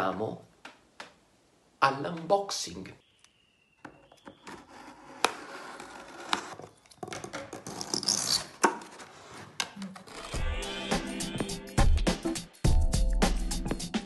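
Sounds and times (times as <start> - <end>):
crackling cardboard: 4.0 - 10.4.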